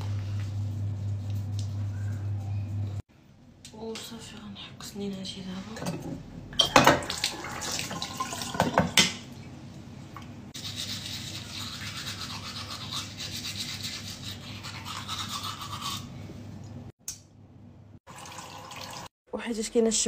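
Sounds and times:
toothbrush scrubbing teeth: 10.6s - 16.1s.

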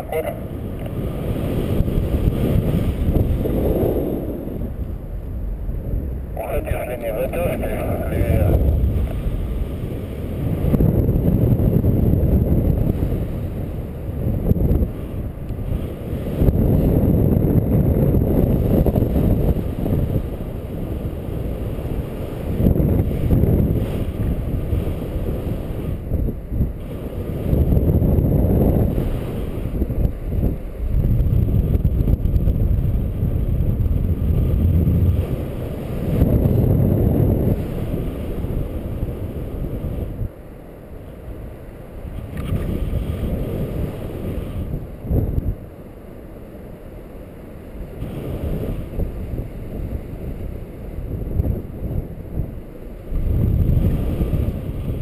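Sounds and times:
wind rumble on microphone: 0.0s - 55.0s.

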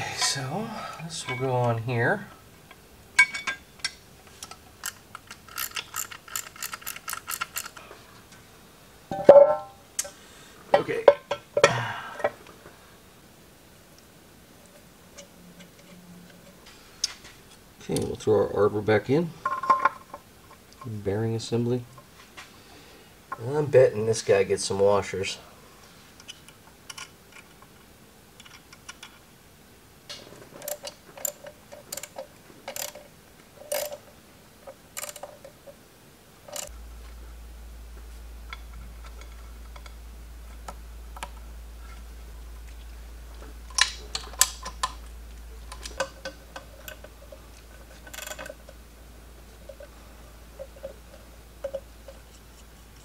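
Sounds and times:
low steady hum: 0.0s - 53.0s
small metal parts clicking: 3.2s - 7.9s, 28.4s - 29.2s, 30.6s - 34.0s, 34.9s - 35.6s, 36.5s - 36.7s, 43.7s - 48.8s.

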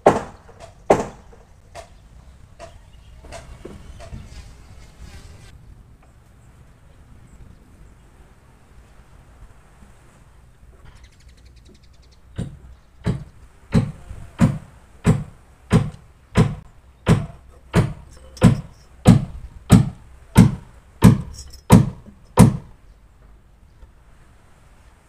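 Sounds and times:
hammer blows: 12.4s - 22.7s.

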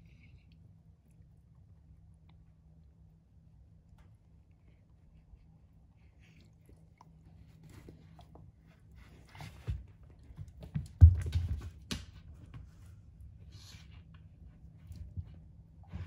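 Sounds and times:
animals scuffling on rug: 7.3s - 16.0s
thumps and scrabbling paws: 7.5s - 12.9s.

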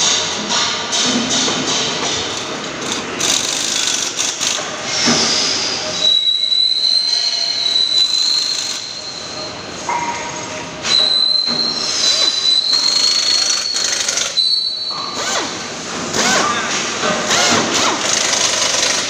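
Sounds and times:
pneumatic hand tool whining: 10.9s - 16.6s, 17.2s - 19.0s.

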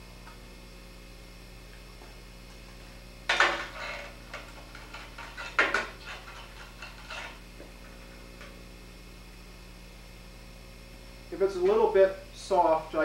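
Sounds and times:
metal tools clattering on steel bench: 3.3s - 7.4s.

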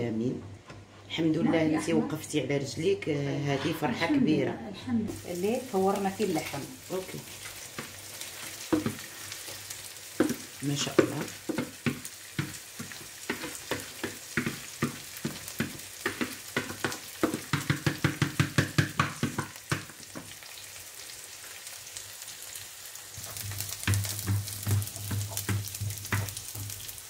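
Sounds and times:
spatula scraping pan: 3.4s - 4.6s, 11.1s - 17.6s
onions sizzling in oil: 4.1s - 27.0s.

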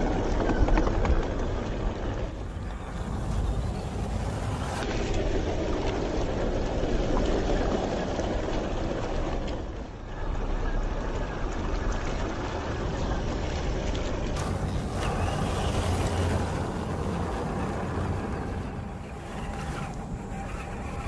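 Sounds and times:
small electric motor and gears: 14.4s - 21.0s.

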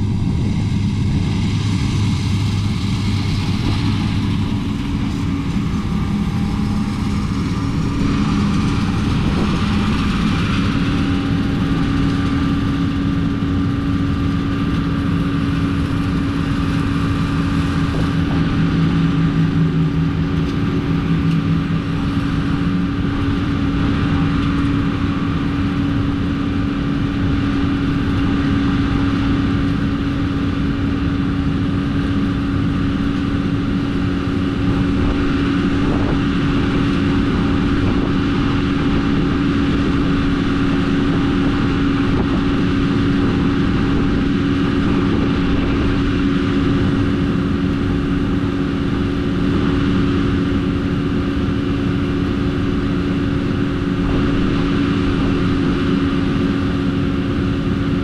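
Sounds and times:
combine harvester engine drone: 0.0s - 58.0s.

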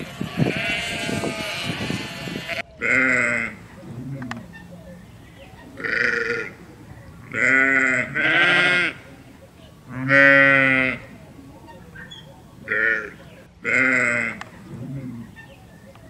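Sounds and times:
sheep bleating: 0.0s - 4.4s, 5.8s - 6.6s, 7.3s - 9.0s, 9.9s - 11.1s, 12.7s - 14.4s.

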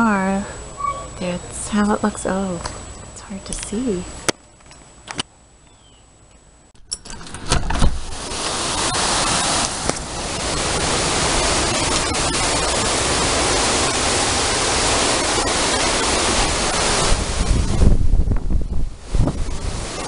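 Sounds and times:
hurricane wind: 6.8s - 20.0s
heavy rain: 7.1s - 20.0s
wind buffeting microphone: 7.1s - 20.0s.

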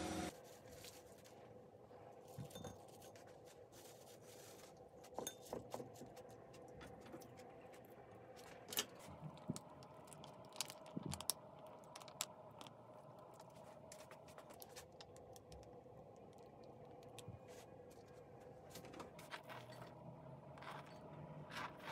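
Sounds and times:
faint steady hum: 0.0s - 21.8s
paper packet crinkling: 9.3s - 15.7s.

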